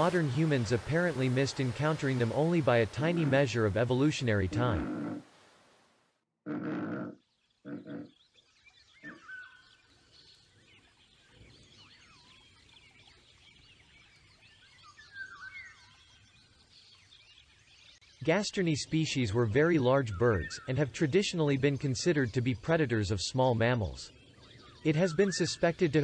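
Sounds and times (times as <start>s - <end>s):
animal grunting calls: 4.6s - 5.2s, 6.4s - 8.1s, 9.0s - 9.3s.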